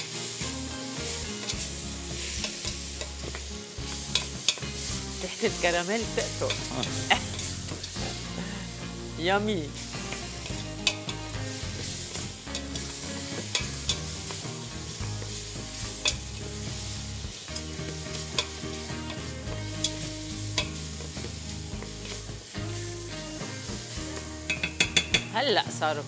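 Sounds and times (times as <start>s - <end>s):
fruit sizzling in a pot: 0.0s - 26.0s
wooden spoon knocking pot: 24.5s - 25.3s.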